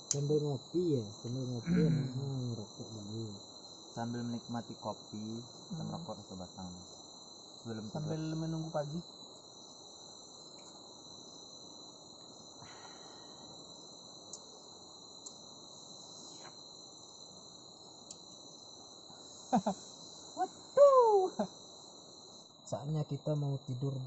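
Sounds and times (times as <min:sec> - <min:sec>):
crickets trilling: 0:00.0 - 0:24.0
man laughing: 0:01.7 - 0:02.2, 0:19.5 - 0:19.8.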